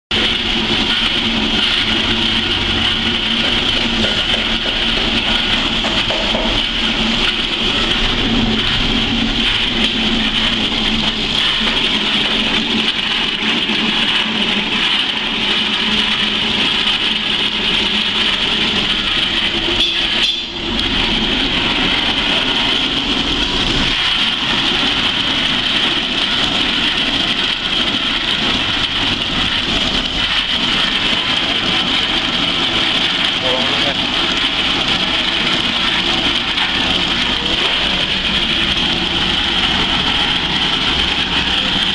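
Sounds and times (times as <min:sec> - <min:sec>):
dehulling machine hum: 0:00.1 - 0:41.9.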